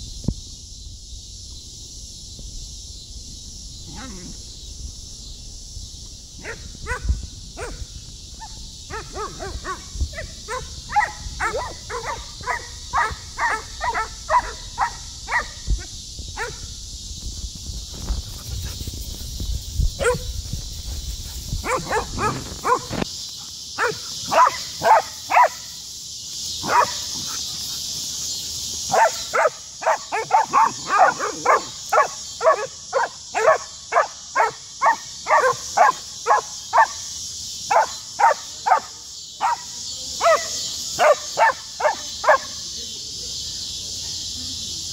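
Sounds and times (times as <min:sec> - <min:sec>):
dogs barking: 0:06.4 - 0:07.8, 0:08.9 - 0:15.6, 0:20.0 - 0:20.3, 0:21.6 - 0:23.0, 0:23.8 - 0:25.6, 0:26.6 - 0:27.8, 0:28.9 - 0:37.0, 0:37.7 - 0:42.6.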